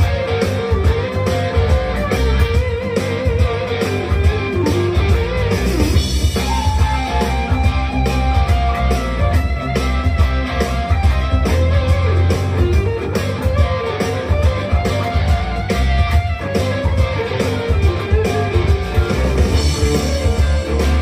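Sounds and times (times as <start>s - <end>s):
bass: 0.0s - 21.0s
drums: 0.0s - 21.0s
electric guitar lead: 0.0s - 21.0s.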